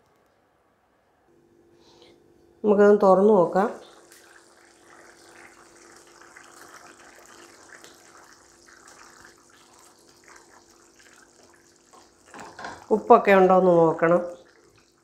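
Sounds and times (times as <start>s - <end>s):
gravy bubbling in a pan: 3.7s - 15.0s.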